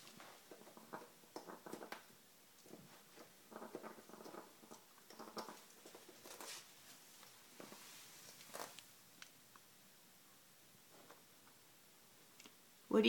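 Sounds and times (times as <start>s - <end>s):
faint scratching and rustling: 0.0s - 9.4s
parrot gnawing at rubber: 0.0s - 9.4s.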